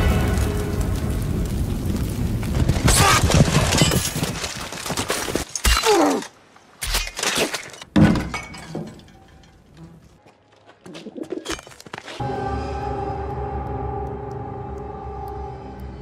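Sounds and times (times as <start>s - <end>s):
crashing and breaking: 0.0s - 9.8s.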